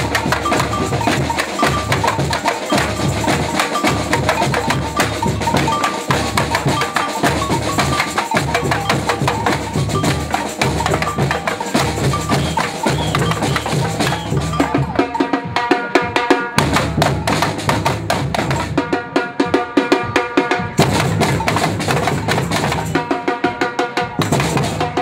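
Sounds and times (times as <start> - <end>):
stick hits on frame drums: 0.0 - 15.1, 20.8 - 23.0
deep drums: 0.0 - 15.2, 16.6 - 18.8, 20.6 - 23.0
percussion band drumming: 0.0 - 25.0.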